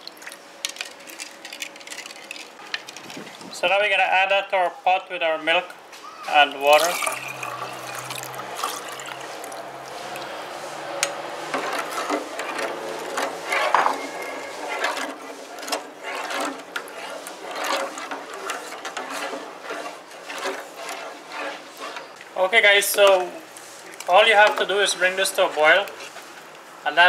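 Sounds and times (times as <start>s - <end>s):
liquid pouring into a saucepan: 6.6s - 10.4s
spoon scraping a metal pot: 6.6s - 22.2s.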